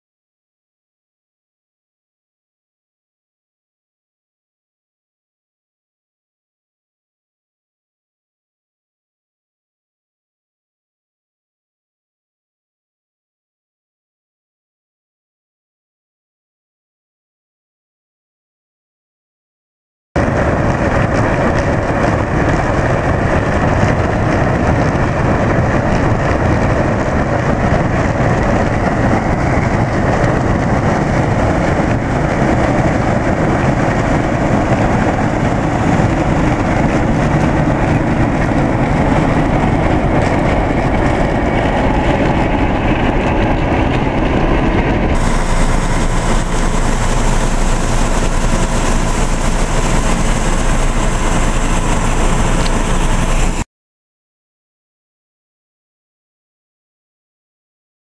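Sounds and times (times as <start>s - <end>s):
combine harvester running: 20.2s - 53.6s
auger pouring seed into trailer: 45.2s - 53.6s.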